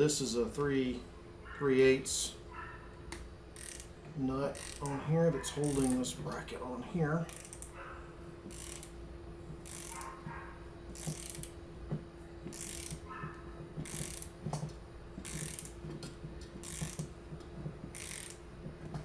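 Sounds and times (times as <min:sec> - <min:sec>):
socket ratchet clicking: 0:03.1 - 0:03.9, 0:04.5 - 0:05.0, 0:05.6 - 0:06.0, 0:07.3 - 0:07.7, 0:08.5 - 0:08.9, 0:09.6 - 0:10.1, 0:11.0 - 0:11.6, 0:12.5 - 0:13.0, 0:13.8 - 0:14.3, 0:15.2 - 0:15.8, 0:16.6 - 0:17.1, 0:17.9 - 0:18.4.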